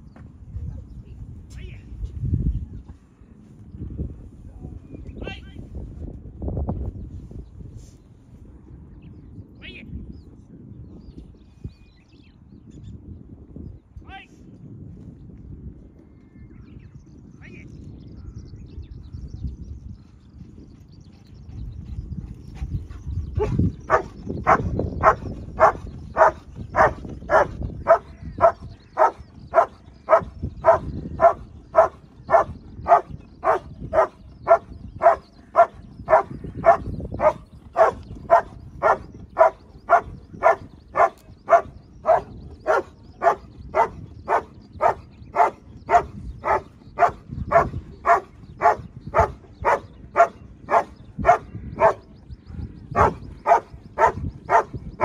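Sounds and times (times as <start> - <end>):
wind rumble on microphone: 0.0 - 55.0
dog barking rhythmically: 23.4 - 52.0, 53.0 - 54.8.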